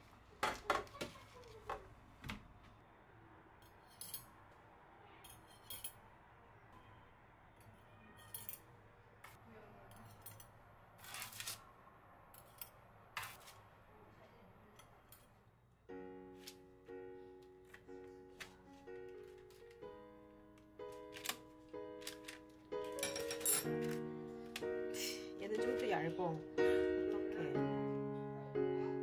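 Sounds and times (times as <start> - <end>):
metal spatula scraping baking sheet: 11.0 - 11.6, 13.2 - 13.6.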